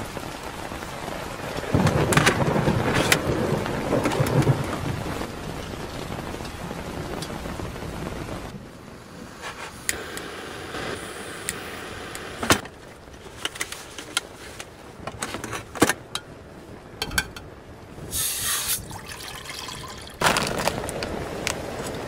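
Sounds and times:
gas stove hissing: 0:09.3 - 0:12.6, 0:18.1 - 0:18.8
metal pots knocking and clinking: 0:17.0 - 0:17.5
water pouring into pot: 0:18.6 - 0:20.7.

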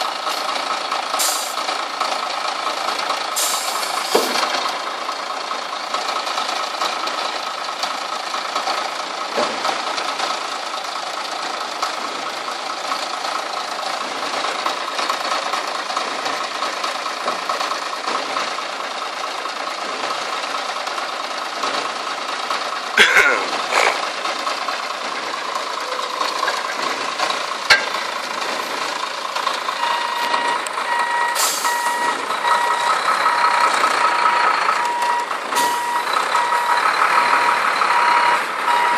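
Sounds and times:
truck diesel engine running: 0:00.0 - 0:38.9
reversing alarm beeping: 0:29.8 - 0:38.9.

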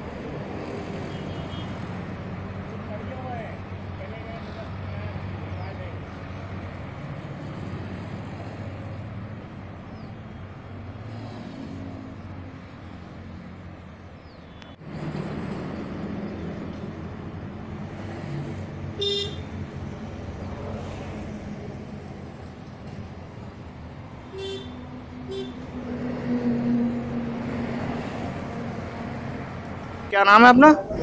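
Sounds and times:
vehicle engines running: 0:00.0 - 0:31.0
car horn toot: 0:01.1 - 0:01.7, 0:19.0 - 0:19.5, 0:24.3 - 0:25.6.

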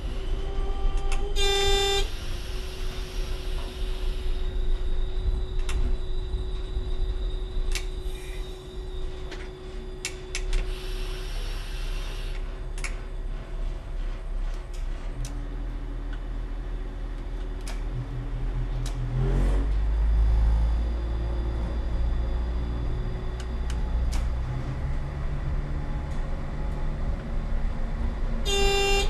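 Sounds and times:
diesel railcar rumble: 0:00.0 - 0:29.0
train horn blast: 0:00.2 - 0:02.2, 0:28.4 - 0:29.0.

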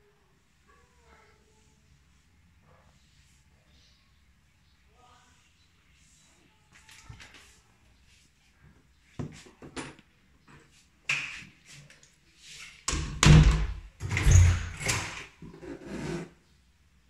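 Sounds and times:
door bumping and rubbing: 0:12.9 - 0:15.3.

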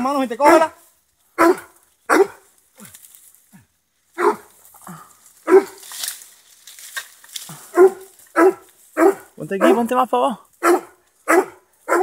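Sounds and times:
dog barking: 0:00.4 - 0:00.8, 0:01.4 - 0:02.5, 0:04.2 - 0:04.5, 0:05.4 - 0:05.8, 0:07.7 - 0:10.0, 0:10.6 - 0:12.0.

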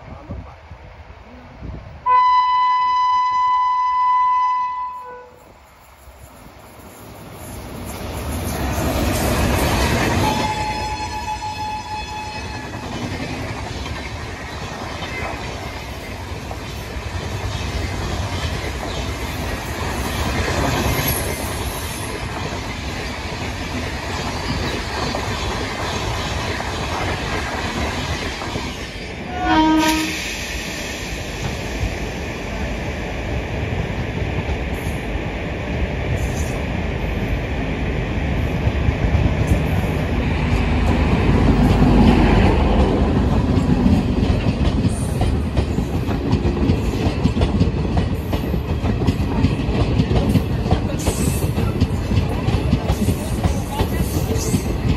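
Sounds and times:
approaching train running noise: 0:00.0 - 0:54.9
train horn blast: 0:02.0 - 0:05.4, 0:10.2 - 0:12.8, 0:29.3 - 0:30.2
train wheels rumbling on rails: 0:05.0 - 0:54.9.

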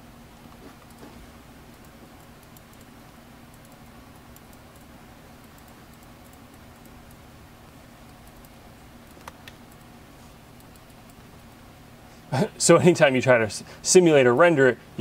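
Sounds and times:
quiet steady hum: 0:00.0 - 0:15.0
mouse and keyboard clicks: 0:08.1 - 0:09.9.

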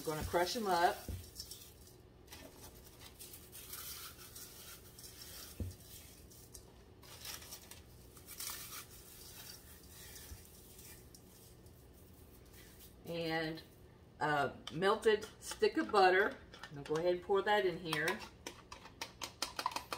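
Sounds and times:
crackers crunching: 0:01.0 - 0:11.9.

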